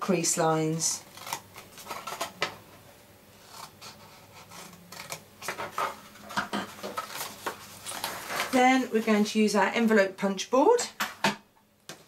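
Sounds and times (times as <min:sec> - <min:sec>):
paper rustling and creasing: 0:03.4 - 0:09.1.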